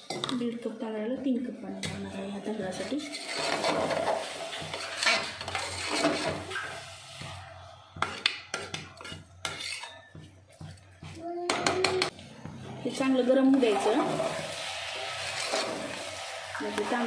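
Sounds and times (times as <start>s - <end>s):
metal spoon scraping a pot: 2.7s - 6.8s, 8.0s - 10.8s, 13.6s - 16.1s.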